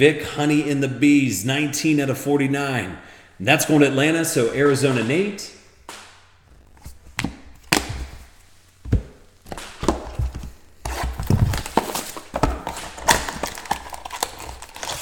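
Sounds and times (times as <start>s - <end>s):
cards tapping and knocking on table: 5.9s - 13.5s
packaging crinkling: 6.4s - 15.0s.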